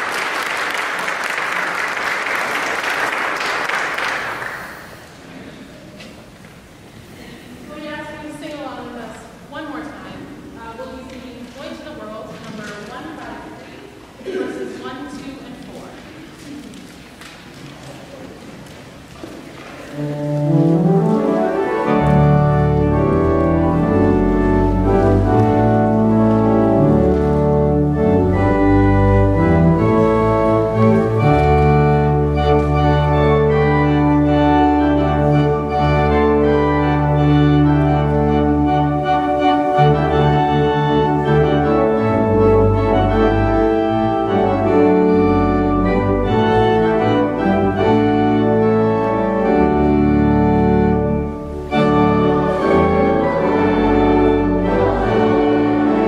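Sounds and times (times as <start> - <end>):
church organ playing: 19.9 - 56.0.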